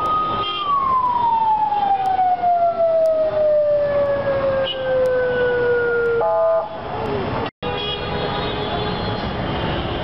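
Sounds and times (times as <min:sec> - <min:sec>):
siren wail: 0:00.0 - 0:06.8
road traffic noise: 0:00.0 - 0:10.0.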